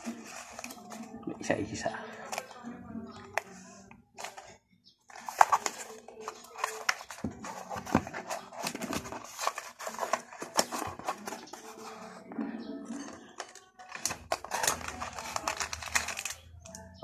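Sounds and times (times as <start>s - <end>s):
cardboard box rustling and tapping: 5.2s - 11.8s.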